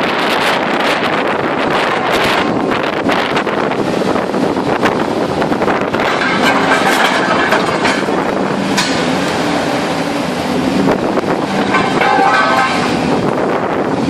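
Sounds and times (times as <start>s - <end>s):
machine drone: 4.0s - 14.0s
metallic clanks and screeches: 5.9s - 13.4s.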